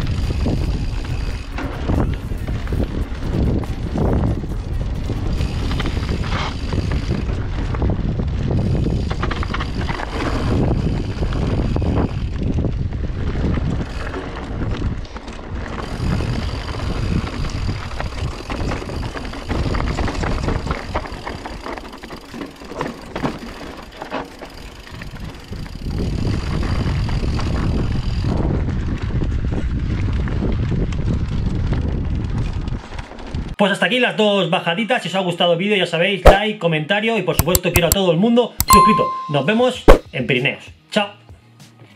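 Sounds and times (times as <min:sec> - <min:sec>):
wind rumble on microphone: 0:00.0 - 0:21.8, 0:24.8 - 0:33.6
bike rattling and knocking: 0:00.0 - 0:33.6, 0:37.4 - 0:38.0
bike tyres rolling over stones: 0:00.0 - 0:33.6.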